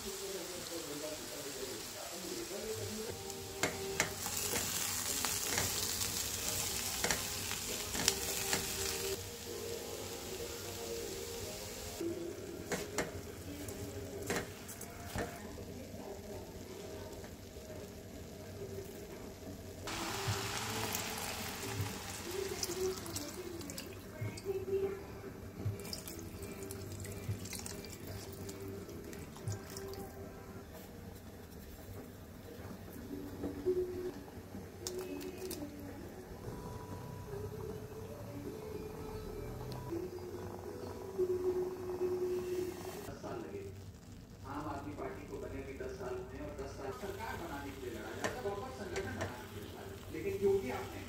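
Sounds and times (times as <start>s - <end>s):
food frying: 0.0s - 31.6s, 38.9s - 51.0s
water poured into hot pan: 19.8s - 24.5s, 25.7s - 30.1s.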